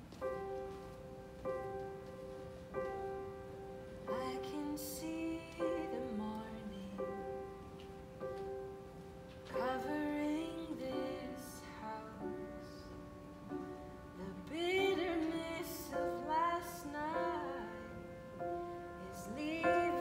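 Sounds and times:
upright piano: 0.0 - 20.0
woman singing gentle melody: 4.0 - 7.7, 9.4 - 20.0.

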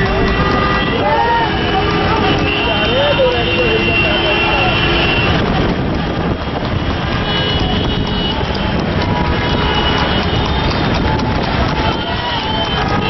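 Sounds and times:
traffic and road noise: 0.0 - 13.0
fluttering wind rumble: 3.9 - 13.0.

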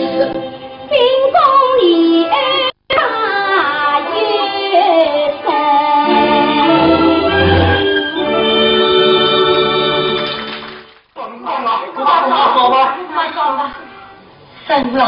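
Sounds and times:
sliding opera melody: 3.3 - 10.9
traditional accompaniment: 6.0 - 11.1.

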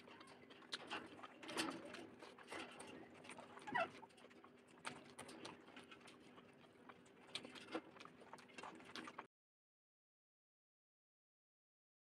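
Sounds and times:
fingers mixing wet food: 0.0 - 9.3.

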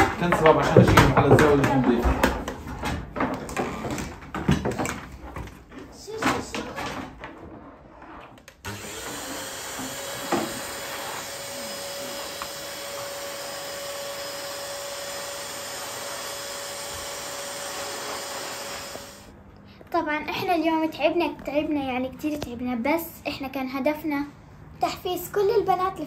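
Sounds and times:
vacuum cleaner running: 8.7 - 19.3.

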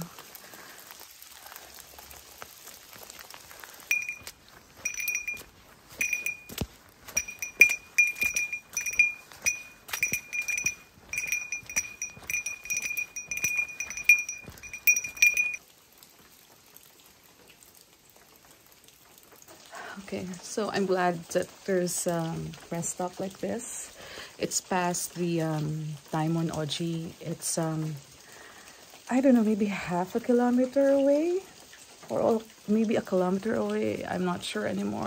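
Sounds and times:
faint rain hiss: 0.0 - 35.0
small metal bell jingling: 3.9 - 15.6.

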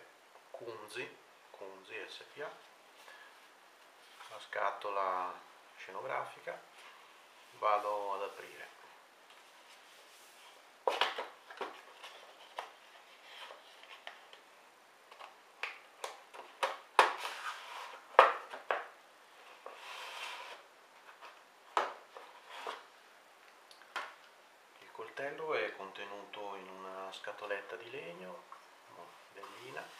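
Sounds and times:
box sliding out of cardboard sleeve: 19.6 - 20.6.

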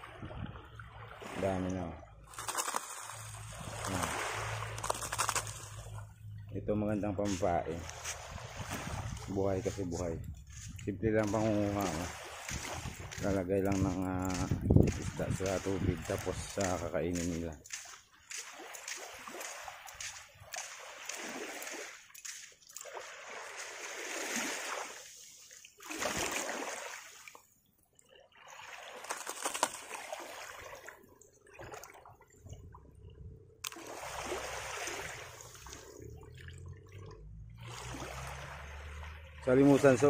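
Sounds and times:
seawater splashing at shoreline: 0.0 - 32.6, 33.6 - 40.0
hands scooping in water: 2.2 - 6.1, 7.2 - 27.6, 28.3 - 32.6.

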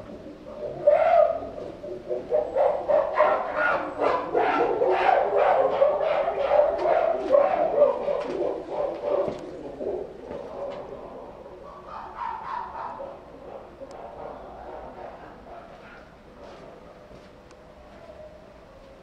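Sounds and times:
chimpanzee calling: 0.2 - 10.9.

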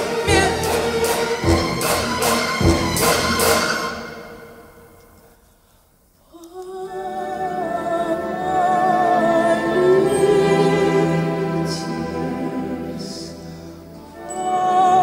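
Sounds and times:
slow quiet music: 6.4 - 15.0.

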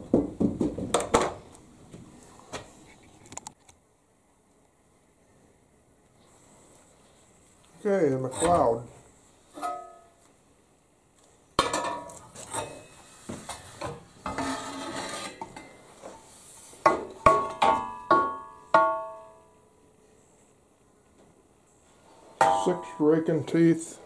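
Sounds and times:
metal scraping: 12.3 - 16.6
metal clanking: 22.4 - 23.3.

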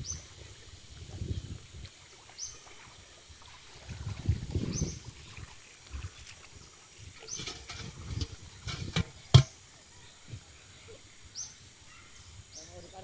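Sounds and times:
pot scraping on dirt: 7.0 - 9.8
metallic pot knocks: 7.4 - 9.6.

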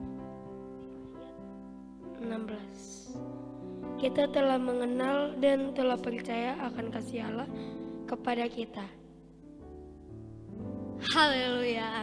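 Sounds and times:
keyboard music held chords: 0.0 - 12.0.

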